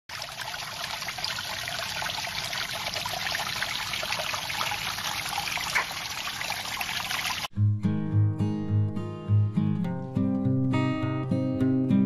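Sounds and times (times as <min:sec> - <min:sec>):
water trickling and splashing: 0:00.0 - 0:07.5.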